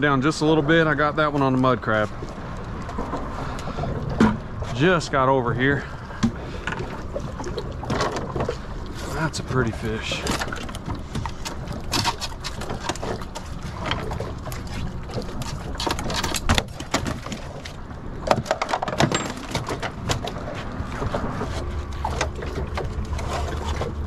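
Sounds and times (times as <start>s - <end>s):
clicks knocks and slaps of fish handling: 10.2s - 14.3s, 15.1s - 24.0s.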